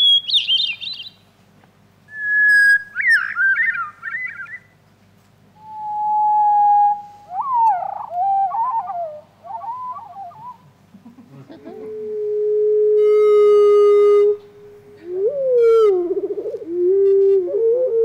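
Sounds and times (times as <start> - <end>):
slowed bird song playback: 0.0 - 1.4, 2.1 - 4.8, 5.6 - 10.8, 13.8 - 18.0.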